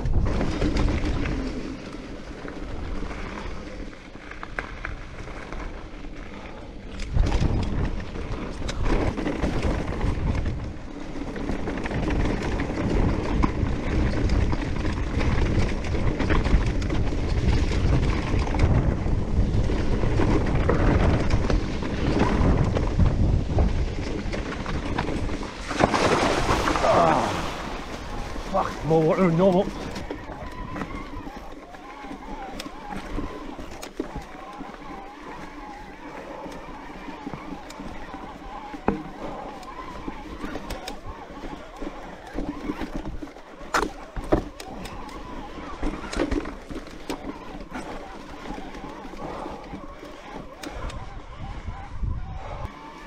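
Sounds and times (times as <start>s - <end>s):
wind buffeting microphone: 0.0s - 3.8s, 5.0s - 53.0s
bike rattling: 0.0s - 53.0s
tyres rumbling on trail: 0.0s - 53.0s.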